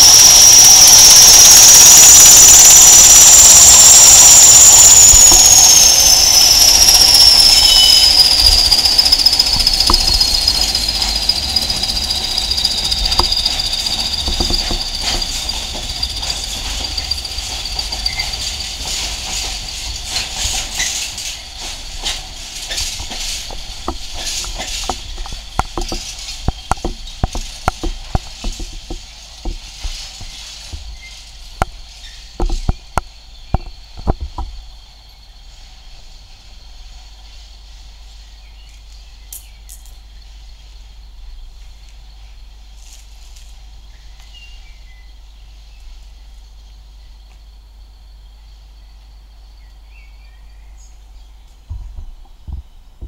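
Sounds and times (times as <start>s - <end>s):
wheels clicking over rail joints: 0.0s - 34.7s
train wheel squeal: 0.0s - 34.8s.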